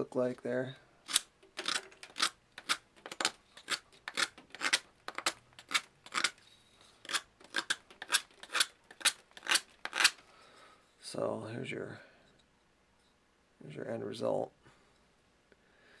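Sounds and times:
knife shaving wood: 1.1s - 10.2s.

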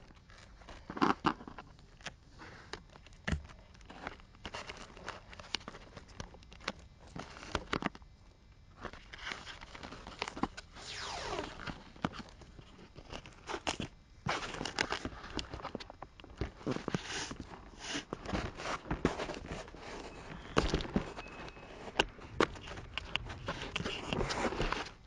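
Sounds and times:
falling whine: 10.8s - 11.9s, 19.8s - 25.0s.

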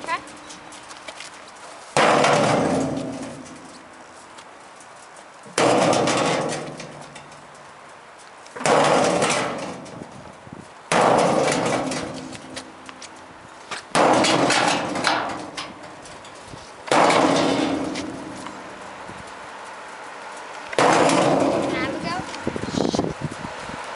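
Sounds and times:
sledgehammer clanging on metal: 2.0s - 3.9s, 5.5s - 7.7s, 8.6s - 10.2s, 10.9s - 18.6s, 20.7s - 22.3s.

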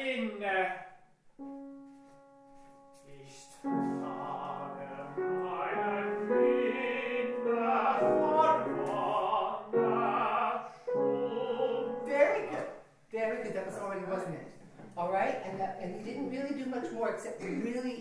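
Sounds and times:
operatic singing: 3.6s - 12.5s.

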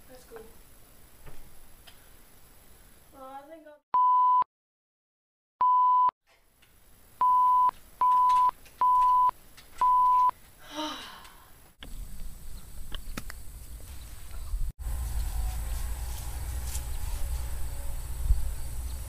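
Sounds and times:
electronic beeps: 7.2s - 10.3s
low outdoor rumble: 11.8s - 19.0s.

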